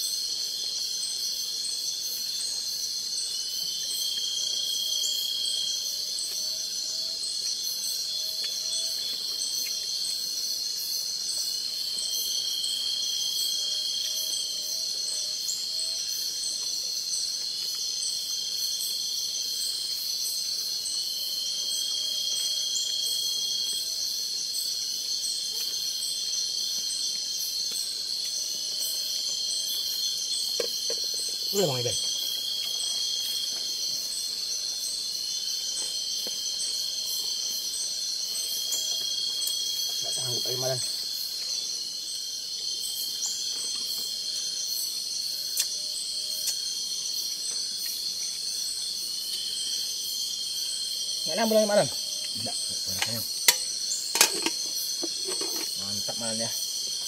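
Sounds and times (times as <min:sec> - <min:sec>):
held insect call: 0:00.0 - 0:57.0
insects shrilling: 0:00.0 - 0:57.0.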